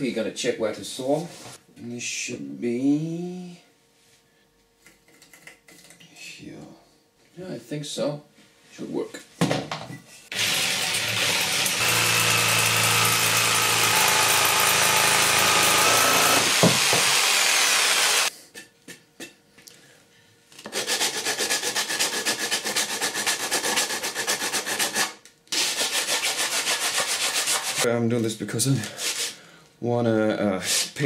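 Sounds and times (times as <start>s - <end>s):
jigsaw cutting wood: 10.3s - 18.3s
hand sanding wood: 20.7s - 27.9s.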